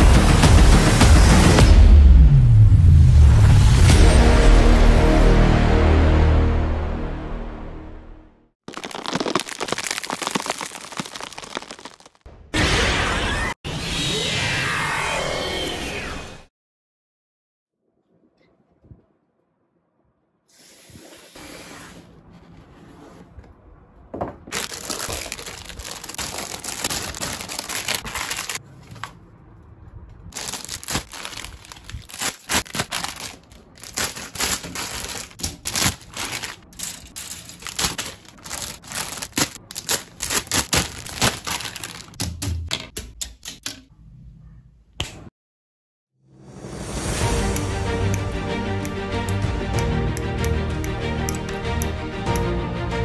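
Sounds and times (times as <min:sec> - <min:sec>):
plastic bags crinkling: 0:08.7 - 0:12.2, 0:24.5 - 0:28.6, 0:30.3 - 0:42.2.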